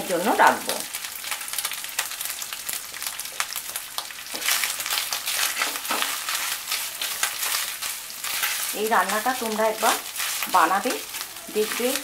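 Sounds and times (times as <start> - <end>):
food sizzling in hot oil: 0.0 - 12.0
spatula stirring in a wok: 3.0 - 12.0.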